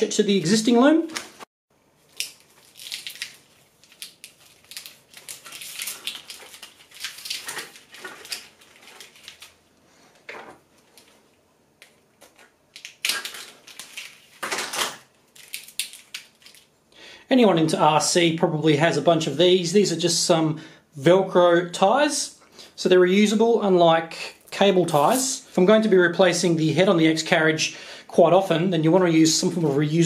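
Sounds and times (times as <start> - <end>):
plastic rustling: 1.1 - 16.8, 24.8 - 25.4
plastic tubing crinkling and clicking: 2.0 - 9.6, 10.2 - 16.7.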